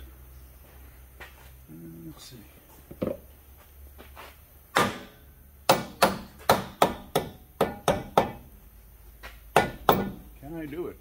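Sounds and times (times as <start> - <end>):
hammer whacking wooden block: 4.8 - 5.1, 5.7 - 8.4.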